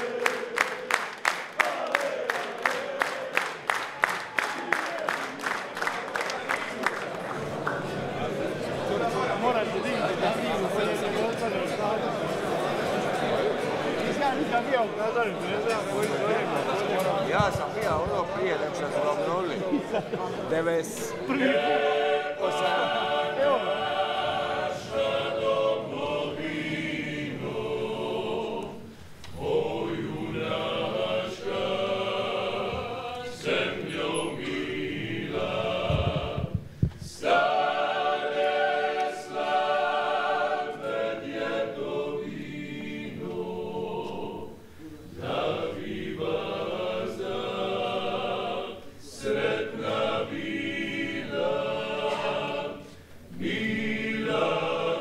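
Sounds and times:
male vocal group singing: 0.0 - 1.0, 20.8 - 55.0.

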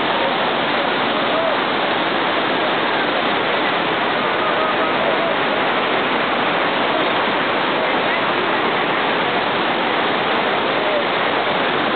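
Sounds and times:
waterfall rushing: 0.0 - 11.9.

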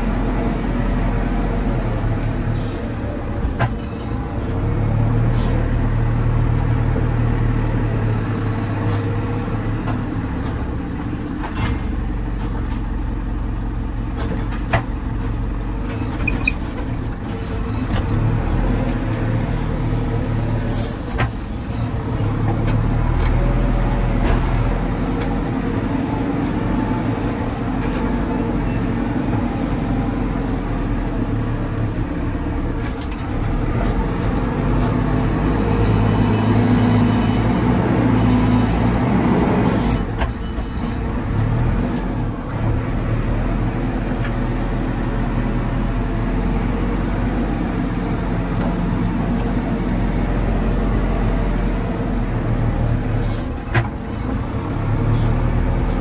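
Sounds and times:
diesel engine running under load: 0.0 - 56.0.

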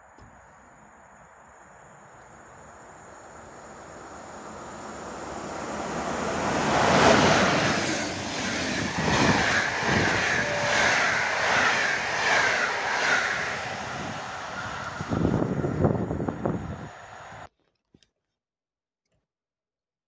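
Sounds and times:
rail hiss: 0.0 - 17.5
electric locomotive passing: 0.2 - 17.5
rhythmic train wheel beat: 3.4 - 16.6.

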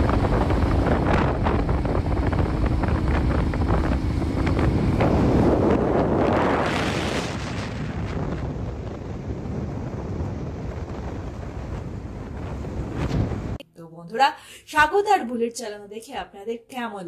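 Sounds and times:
motorcycle engine running: 0.0 - 6.3
wind buffeting microphone: 0.0 - 13.6.

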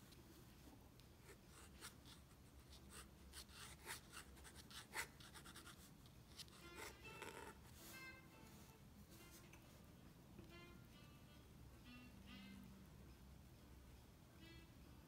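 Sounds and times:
pen nib scratching paper: 1.2 - 7.9.

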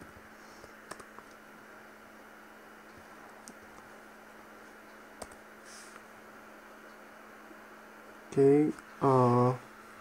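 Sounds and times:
steady low hiss and hum: 0.0 - 10.0
computer keyboard keystrokes: 0.9 - 1.4, 5.2 - 5.4.

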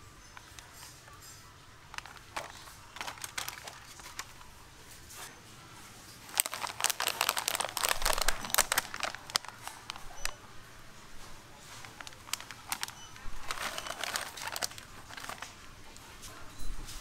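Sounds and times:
plastic snack bags crinkling: 1.9 - 4.6, 6.2 - 10.5, 11.2 - 16.3.

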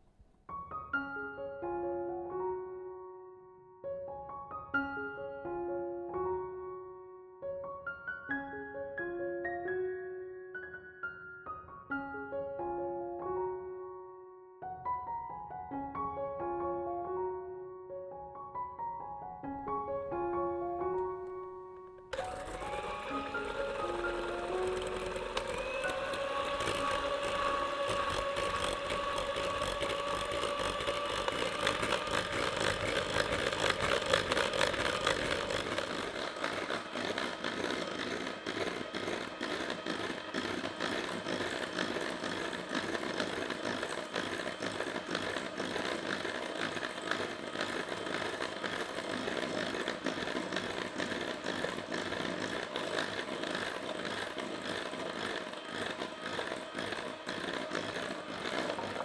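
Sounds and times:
hand mixer motor whir: 19.8 - 59.0
beaters rattling against bowl: 22.1 - 59.0.

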